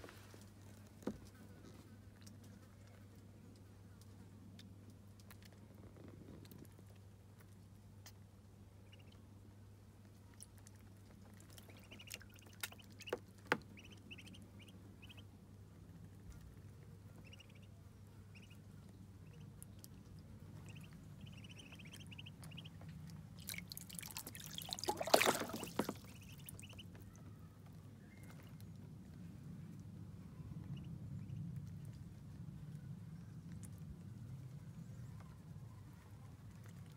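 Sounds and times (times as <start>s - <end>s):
ducklings peeping: 8.8s - 9.3s, 10.4s - 28.9s, 29.7s - 36.9s
water drips: 21.5s - 26.8s
water splash: 23.4s - 26.4s.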